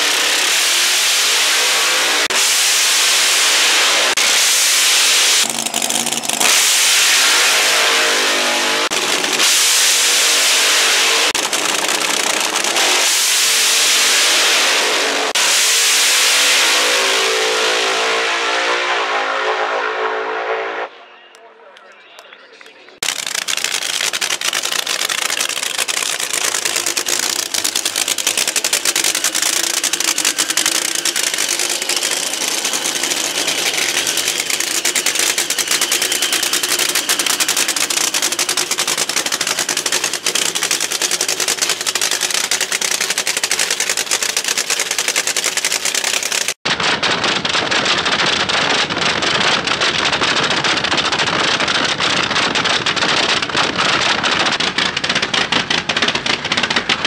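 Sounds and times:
drag car engine clattering: 5.4 - 14.5, 22.6 - 57.0.

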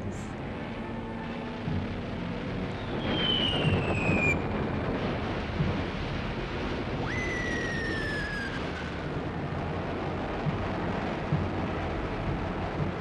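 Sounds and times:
low rumble of explosions: 0.0 - 13.0
falling bomb whistle: 2.7 - 4.6, 6.9 - 9.1.

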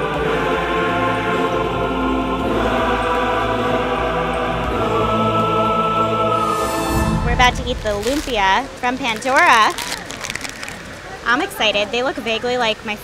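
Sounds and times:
choir voices holding chords: 0.0 - 8.2.

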